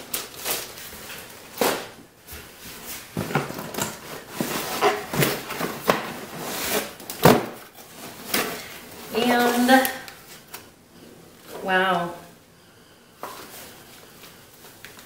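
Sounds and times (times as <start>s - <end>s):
packaging rustling in cardboard box: 2.6s - 10.5s.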